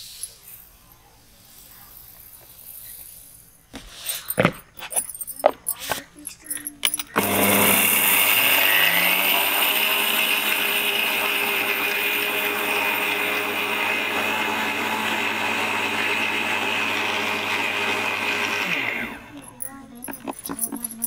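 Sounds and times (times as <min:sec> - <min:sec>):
mixer grinder motor whine: 0:07.2 - 0:19.4.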